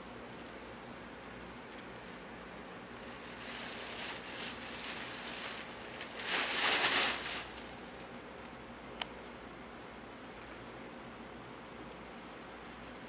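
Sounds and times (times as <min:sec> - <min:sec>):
fabric tunnel rustling: 0:03.0 - 0:07.8.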